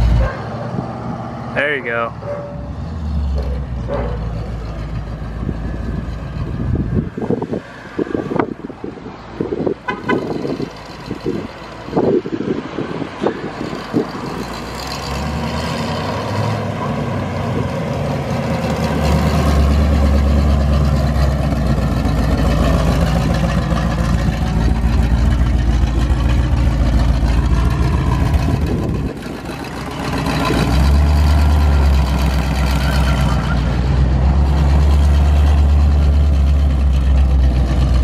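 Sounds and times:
car engine rumbling: 0:00.0 - 0:38.0.

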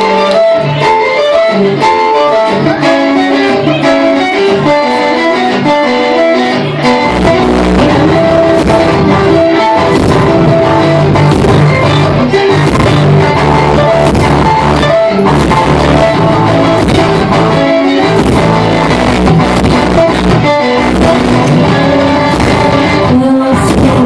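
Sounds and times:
baritone ukulele: 0:00.0 - 0:24.0
picked string melody: 0:00.0 - 0:24.0
heavy low bass: 0:07.0 - 0:24.0.

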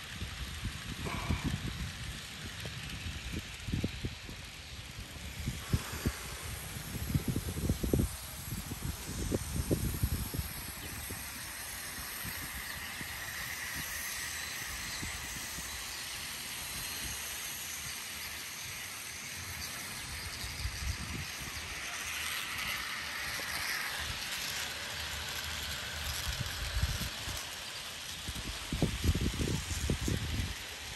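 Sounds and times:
rattle of small train wheels: 0:00.0 - 0:30.9.

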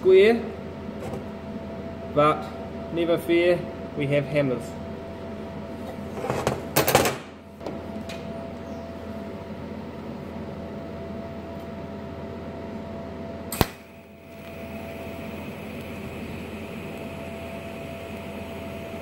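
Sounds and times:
welder hum: 0:13.5 - 0:19.0
welding arc hissing: 0:13.6 - 0:19.0.

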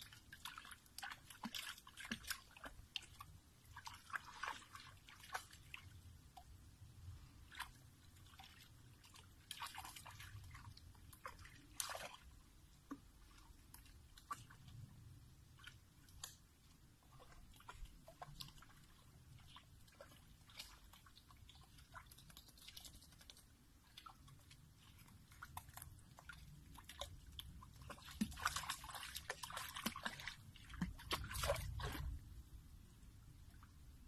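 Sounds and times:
dog splashing in water: 0:00.3 - 0:03.2, 0:24.9 - 0:32.2
wet clicks and drips: 0:15.6 - 0:32.2.

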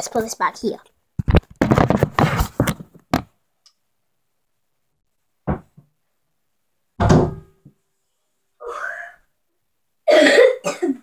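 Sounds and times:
rubbing and knocking on microphone: 0:01.2 - 0:03.4.

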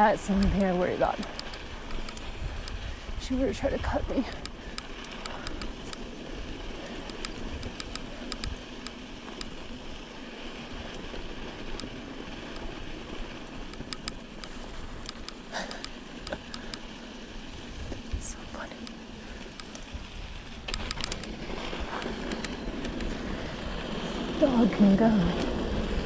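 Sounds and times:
wind rush: 0:00.0 - 0:08.8
bike tyre noise on dirt: 0:00.0 - 0:26.0.

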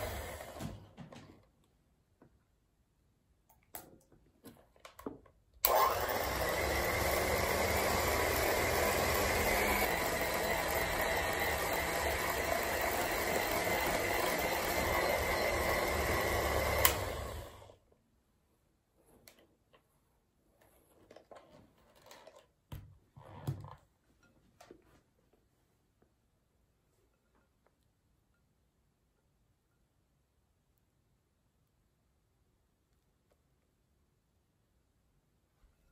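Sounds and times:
electric hand mixer whipping: 0:00.0 - 0:00.8, 0:05.7 - 0:17.8.

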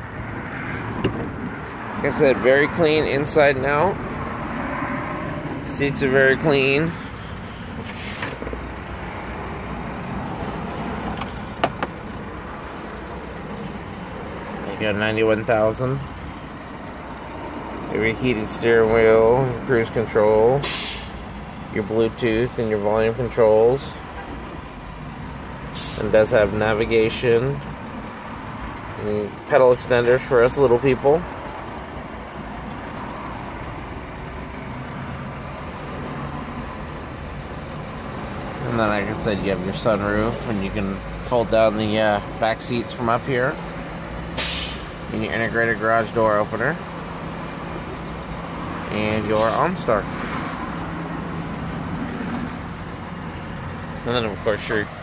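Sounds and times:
car cabin hum and rush: 0:00.0 - 0:20.6
low rumble and hiss in car cabin: 0:05.5 - 0:16.2, 0:21.6 - 0:33.1.

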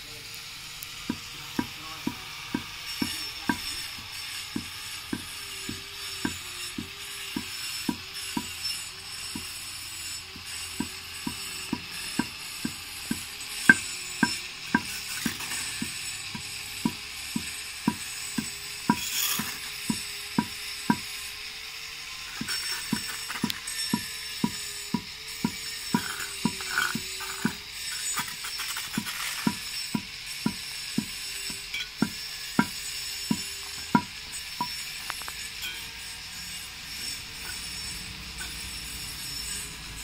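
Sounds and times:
hammer knocking brick on stone: 0:01.1 - 0:08.6, 0:10.4 - 0:21.2, 0:22.4 - 0:35.8.

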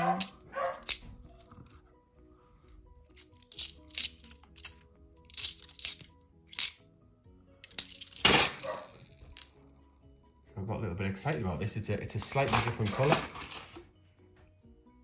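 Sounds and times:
coins clinking: 0:00.0 - 0:01.8, 0:03.0 - 0:06.8, 0:07.6 - 0:09.6, 0:12.1 - 0:13.8
faint background music: 0:00.0 - 0:15.0.

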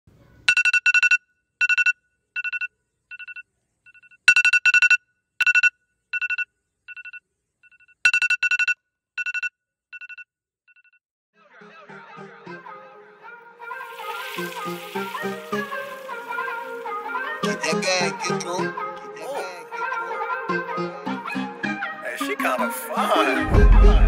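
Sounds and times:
phone alarm beeping: 0:00.5 - 0:11.0.

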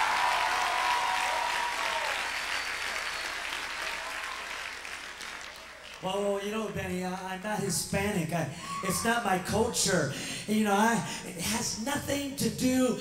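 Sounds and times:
congregation applauding: 0:00.0 - 0:06.2.

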